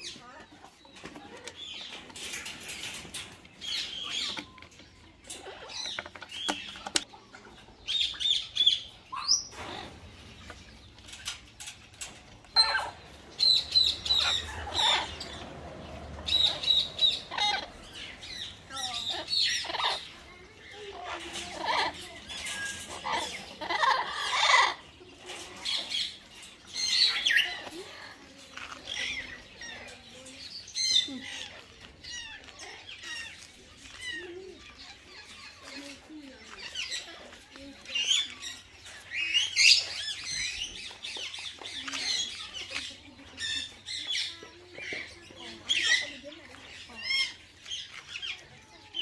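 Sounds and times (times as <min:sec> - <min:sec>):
birds squawking and calling: 0:00.0 - 0:49.0
parrots squawking: 0:12.5 - 0:25.0.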